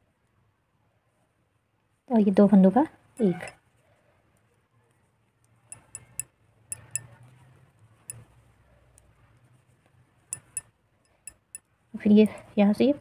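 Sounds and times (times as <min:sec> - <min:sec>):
knitting needles clicking: 0:05.3 - 0:11.7.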